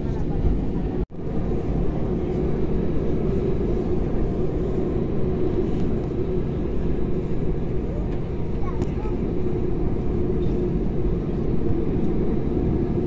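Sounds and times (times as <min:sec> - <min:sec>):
airplane cabin engine hum and rumble: 0:00.0 - 0:13.0.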